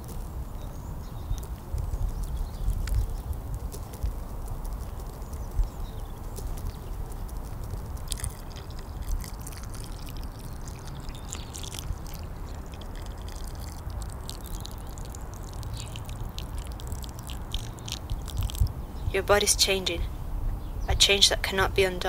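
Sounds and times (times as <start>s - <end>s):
water pouring onto soil: 6.4s - 18.8s
water splashes and drips: 6.4s - 18.8s.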